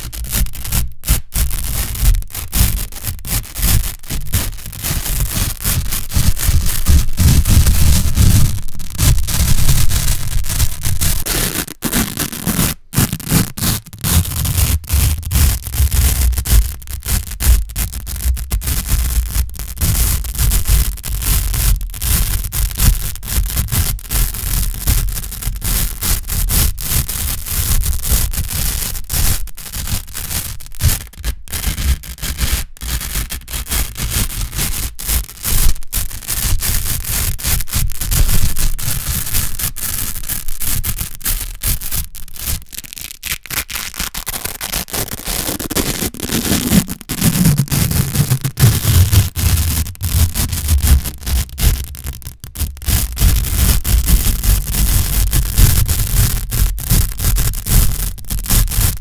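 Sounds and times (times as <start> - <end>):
velcro strips crunching and rasping: 0.0 - 59.0.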